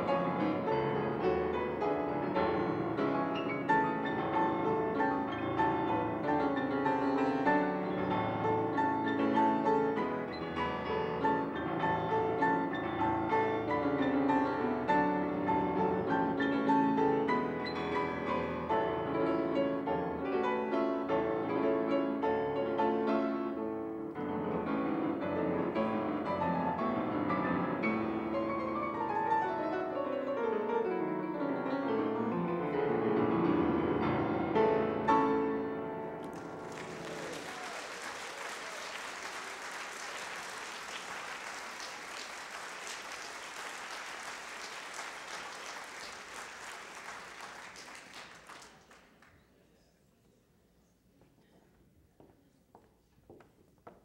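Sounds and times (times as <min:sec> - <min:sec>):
classical piano piece: 0:00.0 - 0:37.3
audience applauding: 0:36.2 - 0:49.4.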